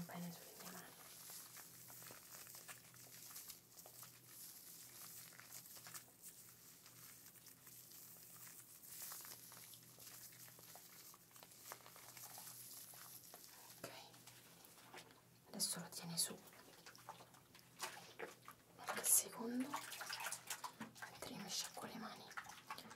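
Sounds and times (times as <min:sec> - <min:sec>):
hair mousse crackling close: 0:00.0 - 0:15.1.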